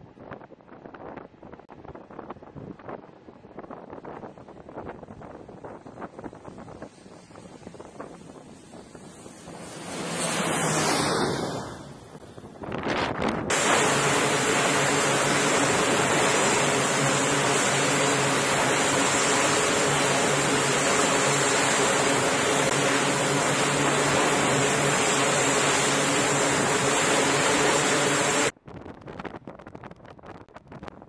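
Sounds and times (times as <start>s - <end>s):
turboprop engines droning: 1.8s - 28.5s
propeller hum: 3.9s - 28.5s
turbine whine: 4.0s - 28.6s.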